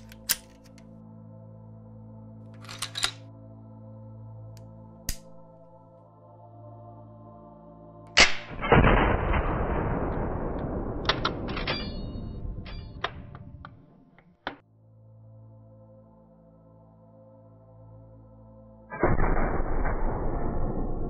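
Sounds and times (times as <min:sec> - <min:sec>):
soft ambient music pad: 0:00.0 - 0:21.0
rifle shot with rolling decay: 0:08.2 - 0:13.0.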